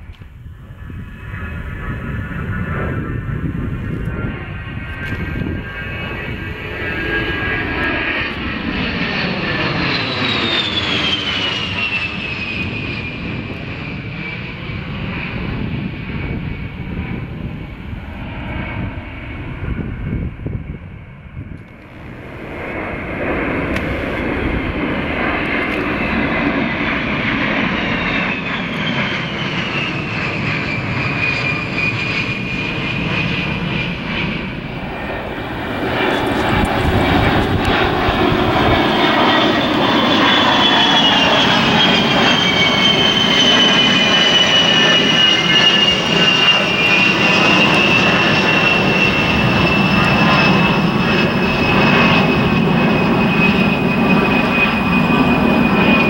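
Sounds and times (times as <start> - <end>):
jets passing overhead: 0.0 - 56.0
high engine whine sliding down: 21.4 - 56.0.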